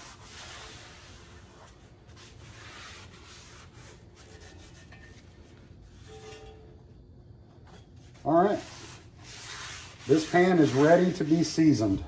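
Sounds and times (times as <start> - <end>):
paper towel wiping skillet: 0.0 - 5.6, 8.0 - 12.0.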